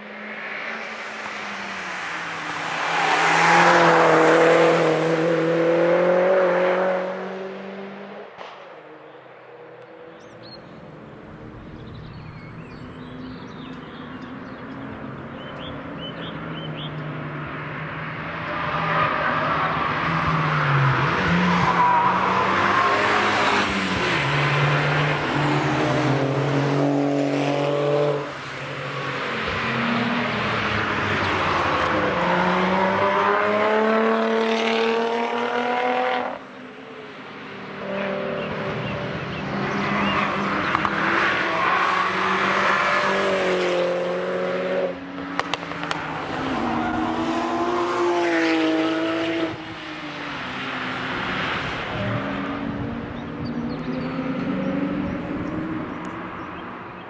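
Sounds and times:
car passing at speed: 0:00.0 - 0:57.0
racing cars passing: 0:00.0 - 0:57.0
bird chirps: 0:09.9 - 0:10.8, 0:11.6 - 0:17.1, 0:53.1 - 0:57.0.

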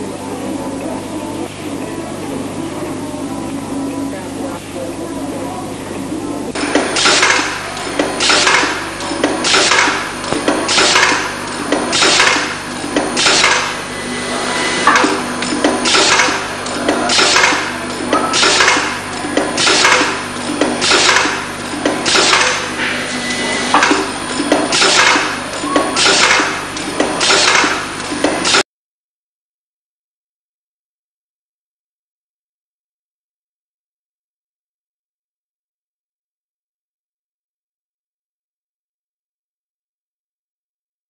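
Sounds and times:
motor hum: 0:00.0 - 0:28.6
machine swishing clatter: 0:06.6 - 0:28.6.

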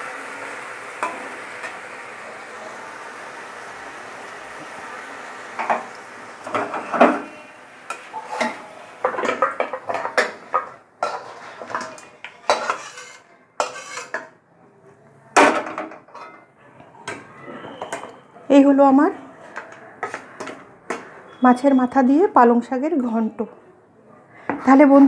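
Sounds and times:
metal spatula scraping pan: 0:06.5 - 0:14.3, 0:19.4 - 0:21.4.

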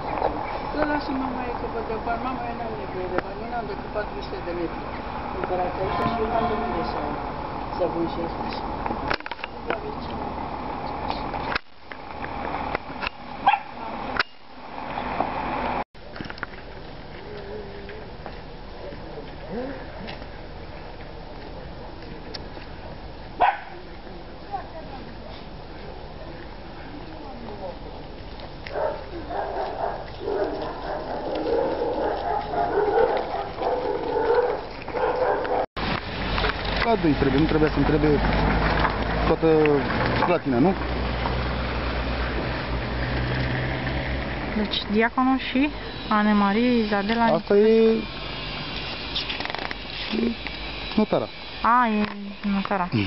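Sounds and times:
outdoor noise: 0:00.0 - 0:53.0
dog barking: 0:13.4 - 0:13.8, 0:23.4 - 0:23.8, 0:28.7 - 0:35.7.

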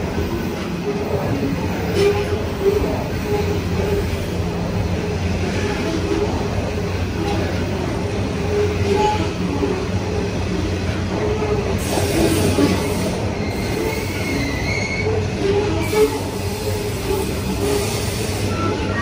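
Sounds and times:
freight train rumbling past: 0:00.0 - 0:19.0
wheels squealing: 0:11.8 - 0:19.0.

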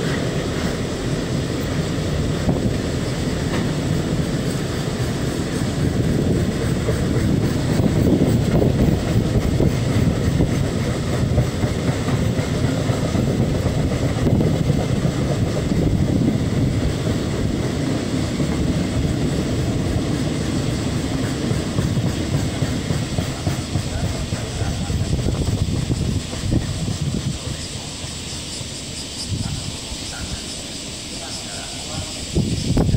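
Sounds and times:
freight train wheels rumbling on rails: 0:00.0 - 0:32.9.

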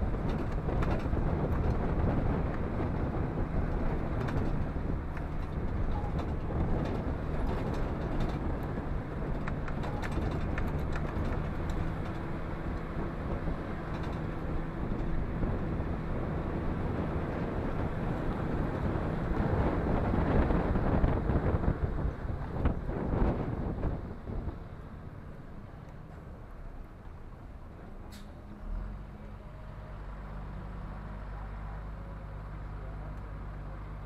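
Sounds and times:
bus engine running: 0:00.0 - 0:34.0
light rattling clicks: 0:03.8 - 0:12.9.

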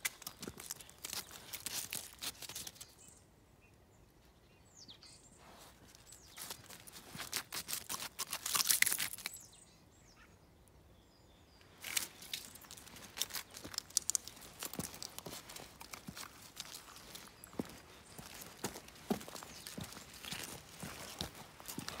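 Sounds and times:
thin ice cracking and crunching: 0:00.0 - 0:02.8, 0:06.4 - 0:09.3, 0:11.8 - 0:22.0
dog footsteps on leaves and gravel: 0:00.0 - 0:02.9, 0:05.6 - 0:09.3, 0:11.8 - 0:22.0.

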